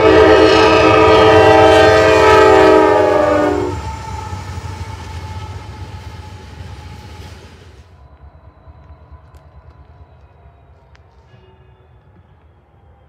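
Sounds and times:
locomotive air horn: 0.0 - 7.4, 11.2 - 12.2
train rumble: 0.0 - 13.0.

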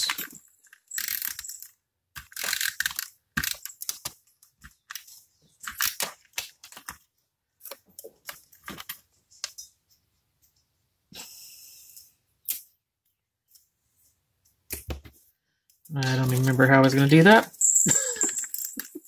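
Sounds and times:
paper rustling and crinkling: 3.8 - 7.1.

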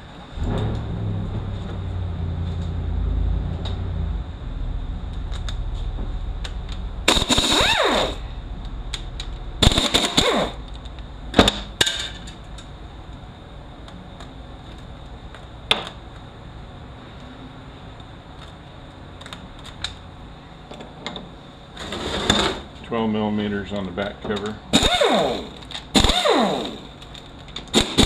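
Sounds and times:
pneumatic impact wrench rattling: 7.1 - 8.3, 9.6 - 10.6, 24.7 - 27.0, 27.7 - 28.0.

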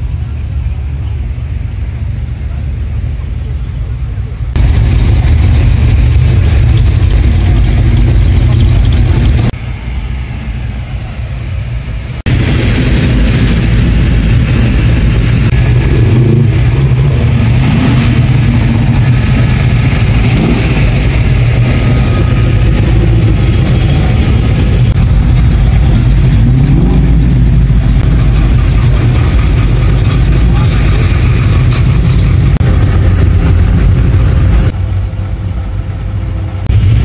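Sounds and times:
car engines running: 0.0 - 37.0
engine revving: 12.3 - 34.8.

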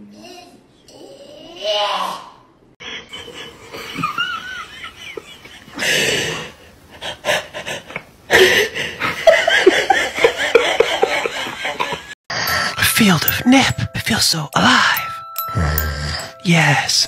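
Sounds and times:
person laughing hard: 8.4 - 12.2.

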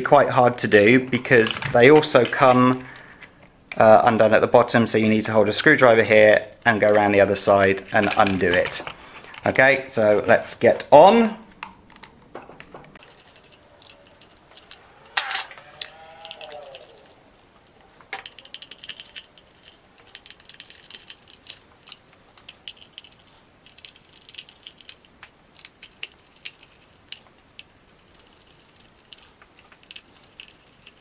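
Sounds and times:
screwdriver light clicks and rattles: 11.5 - 31.0.

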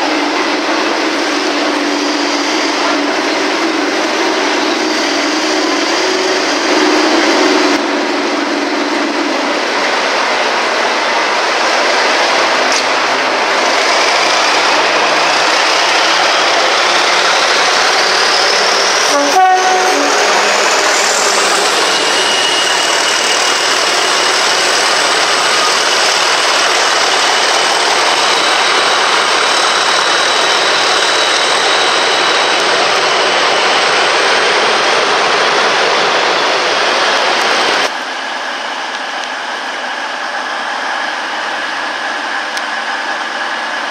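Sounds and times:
diesel locomotive engine: 0.0 - 43.9
turbocharger whistle: 16.3 - 24.6.

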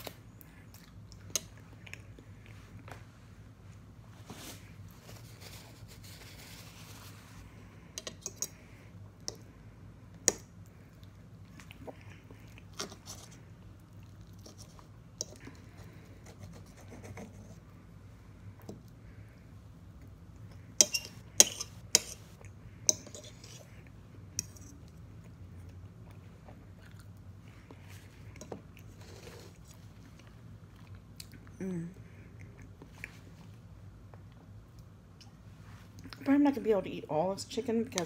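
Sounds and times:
faint low hum: 0.0 - 38.0
person chewing: 10.2 - 16.0, 21.7 - 31.6
cutlery scraping on a plate: 20.8 - 22.3, 22.9 - 23.7.

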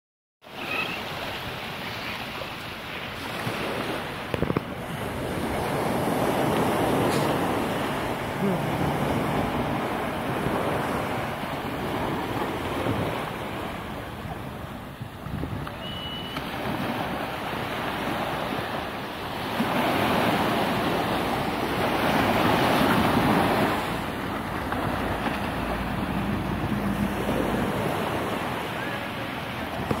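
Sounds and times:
small surf breaking on beach: 0.5 - 30.0
wind on microphone: 3.2 - 18.8.

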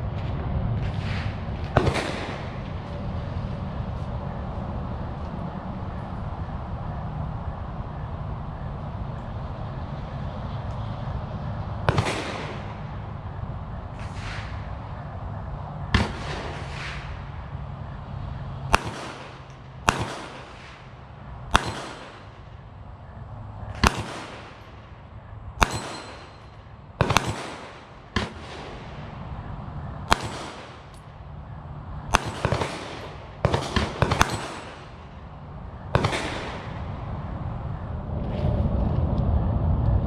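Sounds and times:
gunshots with ringing echo: 1.8 - 2.6, 11.9 - 13.2, 15.9 - 17.4, 18.7 - 22.8, 23.7 - 29.2, 30.0 - 31.2, 32.1 - 35.3, 35.9 - 37.1.

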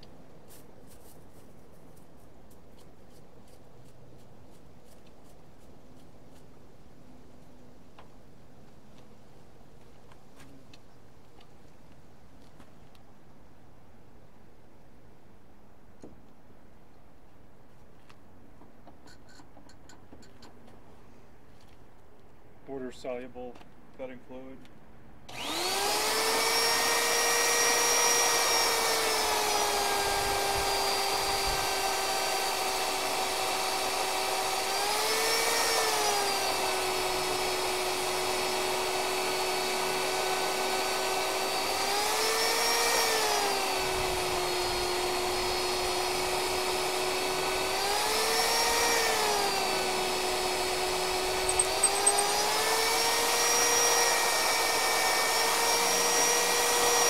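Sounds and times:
drill motor boring through steel: 25.3 - 57.0.

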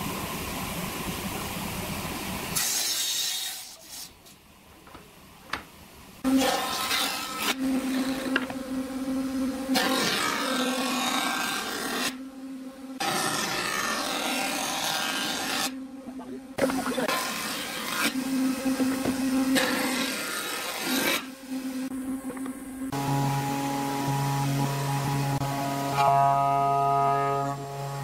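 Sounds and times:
jointer planing wood: 6.2 - 12.2, 13.0 - 28.0.

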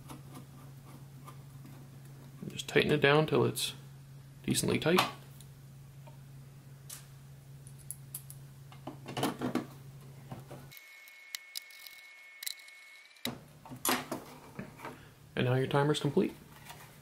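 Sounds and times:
screwdriver clicks: 10.8 - 13.3.

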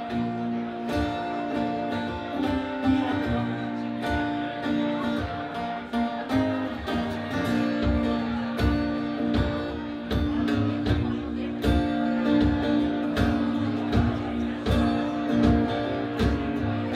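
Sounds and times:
electric guitar: 0.0 - 16.9
strummed acoustic guitars: 0.0 - 16.9.

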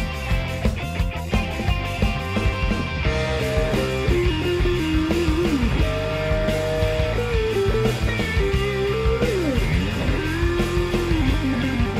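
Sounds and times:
rock music with sliding guitar: 0.0 - 11.9.

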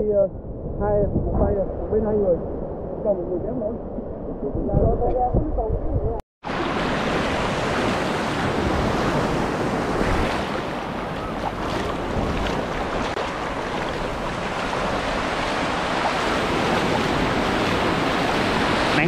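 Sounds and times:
wind on microphone: 0.0 - 19.0
sea surf breaking and washing: 6.4 - 19.0.

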